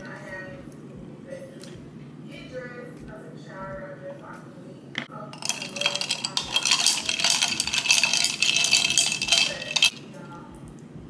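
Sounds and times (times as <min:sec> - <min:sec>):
spoon clinking glass and ice: 0:05.4 - 0:10.0.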